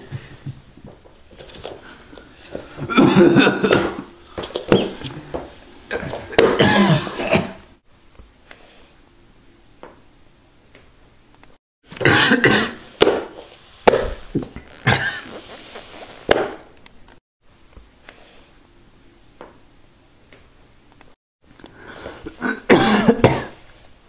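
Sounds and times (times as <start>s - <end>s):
person coughing: 2.8s - 4.1s, 5.9s - 7.6s, 12.0s - 12.8s, 14.8s - 15.4s, 22.2s - 23.6s.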